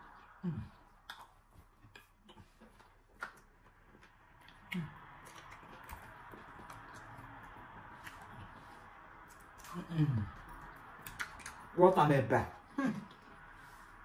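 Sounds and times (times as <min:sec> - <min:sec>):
person chewing food: 0:00.0 - 0:11.8
mouth clicks and smacks: 0:00.2 - 0:08.6, 0:09.2 - 0:11.8.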